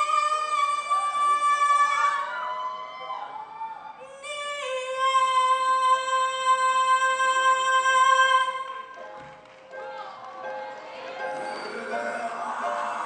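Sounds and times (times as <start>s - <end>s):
high voice singing: 11.2s - 13.0s.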